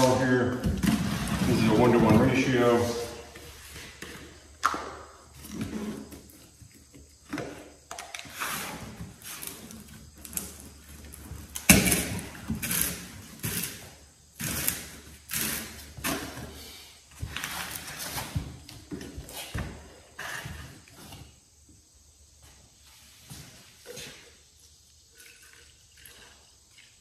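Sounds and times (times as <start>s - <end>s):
plastic bottles knocking on concrete: 4.2s - 5.3s.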